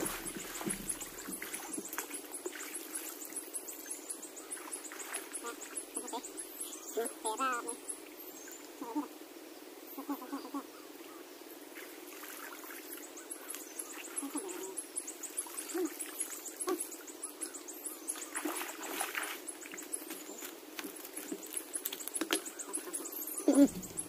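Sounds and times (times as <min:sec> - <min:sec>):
water splashing: 0:00.0 - 0:06.2, 0:11.8 - 0:13.1, 0:18.1 - 0:24.0.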